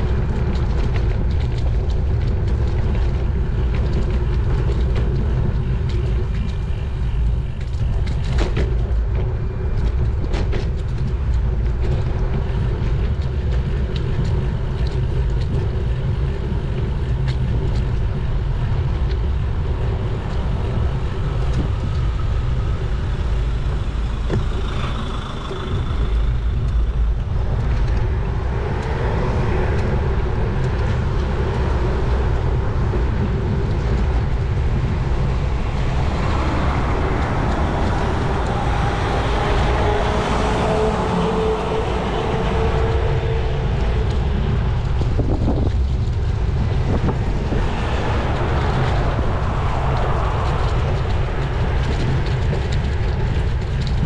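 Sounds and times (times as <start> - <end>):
road traffic rumble: 0.0 - 54.0
rush of air: 27.3 - 54.0.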